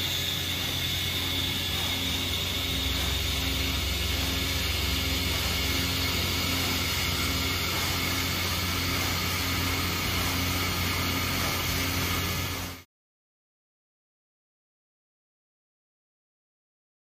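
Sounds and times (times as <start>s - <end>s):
machining center whirring hum: 0.0s - 12.8s.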